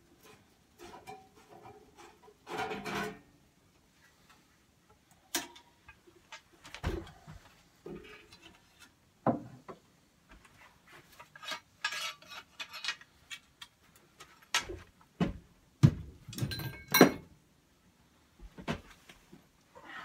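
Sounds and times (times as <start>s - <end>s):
metallic clanks of steel parts: 16.3s - 17.3s.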